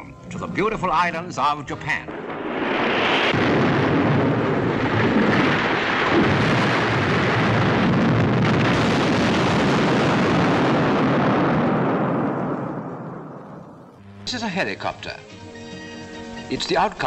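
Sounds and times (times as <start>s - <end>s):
explosions rumbling: 1.8s - 14.0s.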